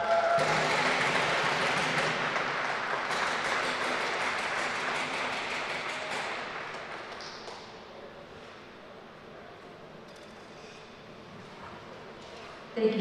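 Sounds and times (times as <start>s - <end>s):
audience applause: 0.0s - 7.2s.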